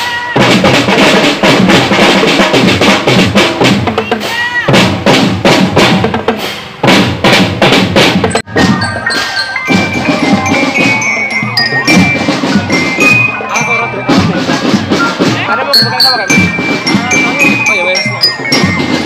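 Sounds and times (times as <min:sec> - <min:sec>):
marching snare and tenor drums: 0:00.0 - 0:19.0
glockenspiel melody: 0:08.2 - 0:19.0.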